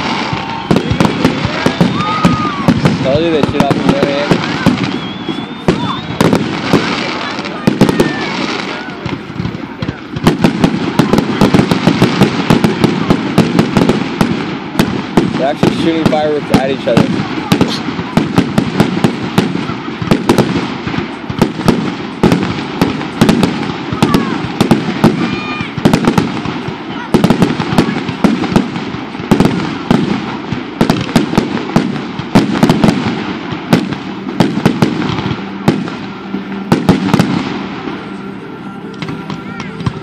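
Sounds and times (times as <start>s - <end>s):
fireworks bursting with sharp bangs: 0.0s - 40.0s.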